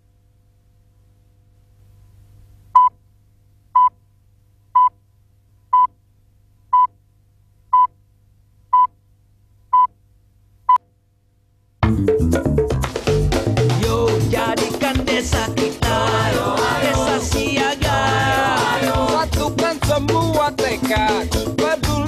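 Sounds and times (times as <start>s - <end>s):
faint low hum: 0.0s - 11.8s.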